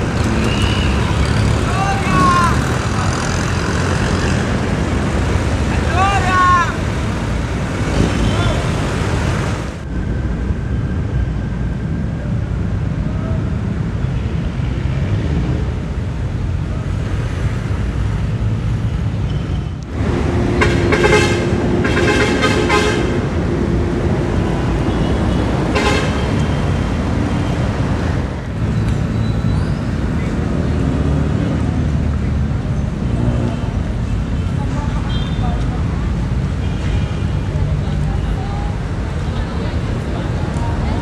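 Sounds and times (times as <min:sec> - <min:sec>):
traffic rumble: 0:00.0 - 0:41.0
vehicle horn tooting: 0:20.6 - 0:23.2, 0:24.9 - 0:26.4.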